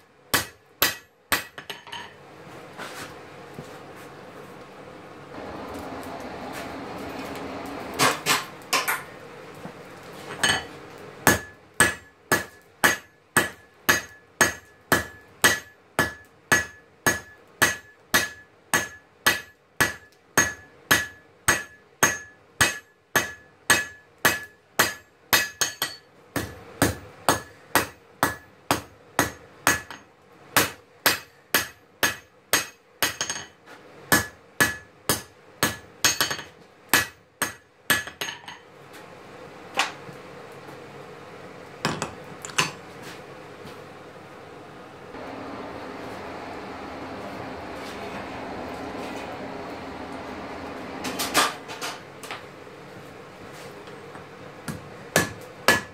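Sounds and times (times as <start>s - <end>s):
hammer ringing on anvil: 11.3s - 26.0s.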